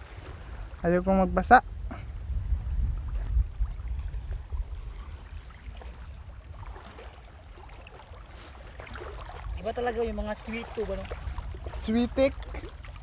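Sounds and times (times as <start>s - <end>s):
wind rumbling on microphone: 0.0s - 13.0s
water splashing around wading legs: 3.0s - 13.0s.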